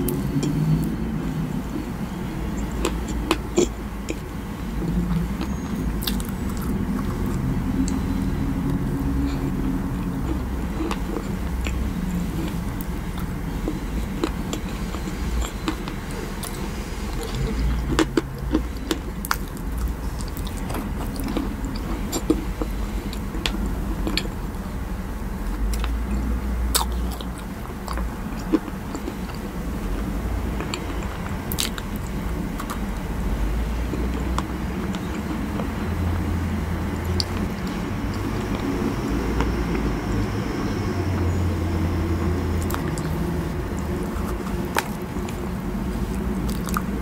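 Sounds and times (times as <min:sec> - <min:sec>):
mouth clicks and smacks: 0:00.0 - 0:24.4, 0:42.2 - 0:47.0
close chewing: 0:00.0 - 0:47.0.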